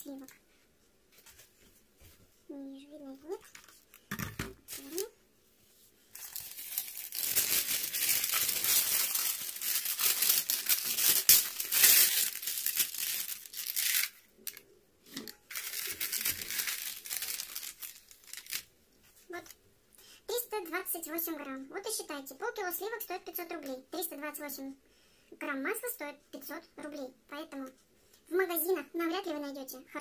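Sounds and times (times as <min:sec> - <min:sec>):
parchment paper crinkling: 0:04.7 - 0:05.2, 0:06.1 - 0:14.6, 0:15.2 - 0:18.7
paper tearing: 0:06.2 - 0:14.2, 0:15.5 - 0:18.6.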